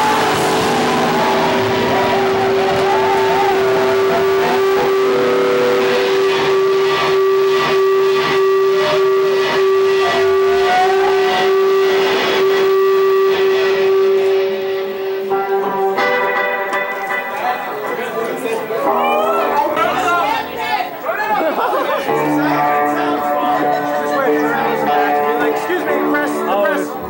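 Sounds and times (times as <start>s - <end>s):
drum beat with cymbal hits: 0.0s - 17.4s
distorted electric guitars: 0.0s - 27.0s.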